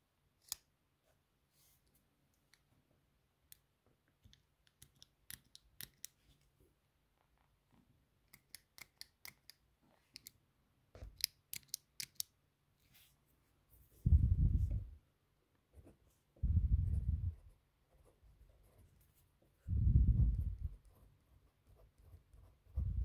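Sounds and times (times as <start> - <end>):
mechanical pencil clicking: 11.2 - 12.3
pencil writing on paper: 20.4 - 23.0.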